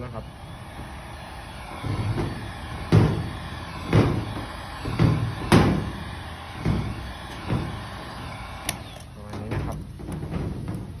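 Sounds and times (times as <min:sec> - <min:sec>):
dull thumping surge: 0:00.4 - 0:09.0
heat gun blowing air: 0:00.4 - 0:09.1.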